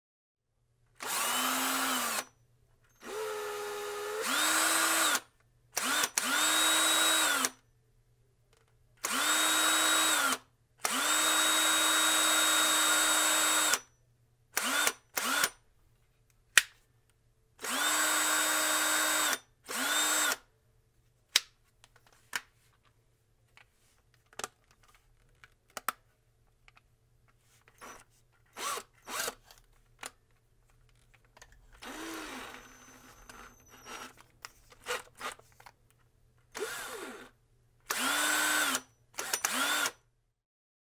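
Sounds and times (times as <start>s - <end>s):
cordless drill motor whining: 1.0s - 2.3s, 3.0s - 7.6s, 9.0s - 13.8s, 14.6s - 15.5s, 17.6s - 20.4s, 27.8s - 28.0s, 28.6s - 29.5s, 31.8s - 34.2s, 36.6s - 40.0s.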